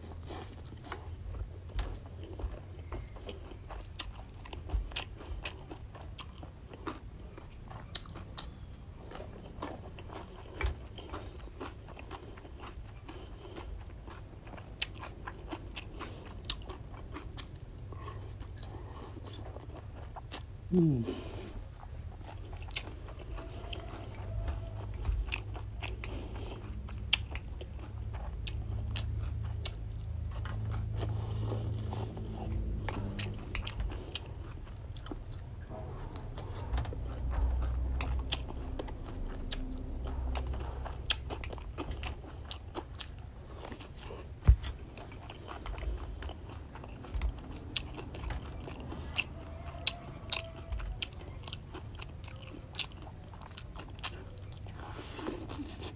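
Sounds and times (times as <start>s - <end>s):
chewing noodles: 0.0s - 55.9s.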